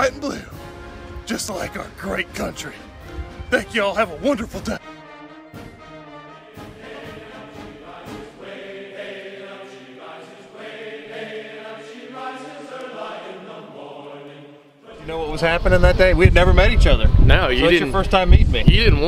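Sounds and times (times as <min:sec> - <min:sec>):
choir singing slow chords: 0:05.0 - 0:15.4.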